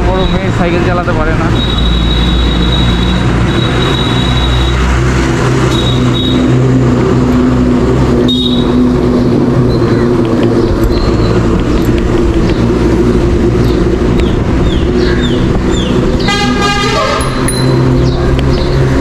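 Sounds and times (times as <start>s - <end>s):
vehicle engines running: 0.0s - 19.0s
vehicle horn honking: 16.2s - 17.5s.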